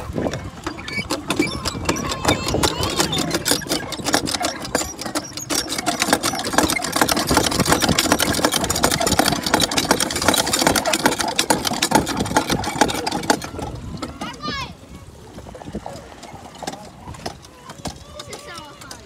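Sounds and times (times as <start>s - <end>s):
hand water pump clattering: 0.0s - 19.0s.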